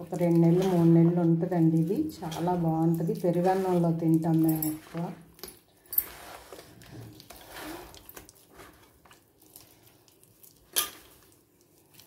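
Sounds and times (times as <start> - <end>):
hand squelching wet pulp: 6.1 - 12.0.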